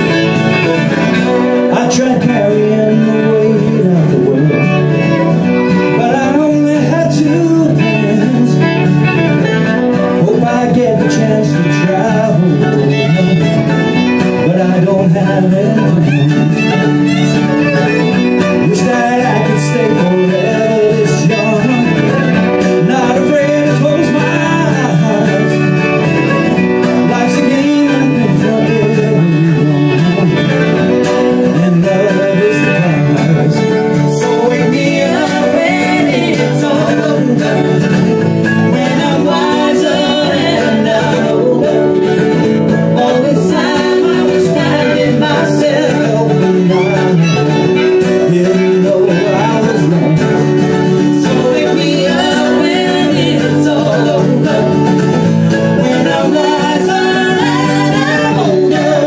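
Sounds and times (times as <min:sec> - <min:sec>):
man singing: 0:00.0 - 0:59.0
strummed acoustic guitar: 0:00.0 - 0:59.0.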